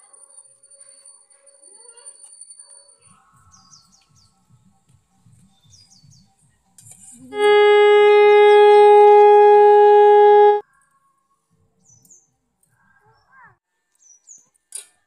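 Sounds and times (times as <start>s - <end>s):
conch shell blown: 7.4s - 10.6s.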